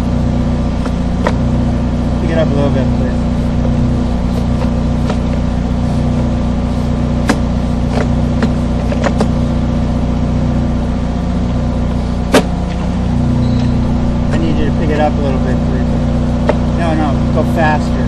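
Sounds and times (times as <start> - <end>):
engine running steadily: 0.0 - 18.0
sharp clicks and knocks: 7.2 - 9.4, 16.4 - 16.7.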